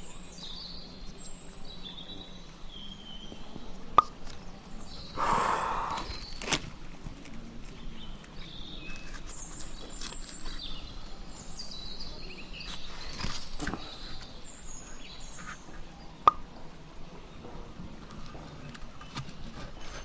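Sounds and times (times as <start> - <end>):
small birds chirping: 0.0 - 20.0
rustling of palm fronds: 4.4 - 16.0.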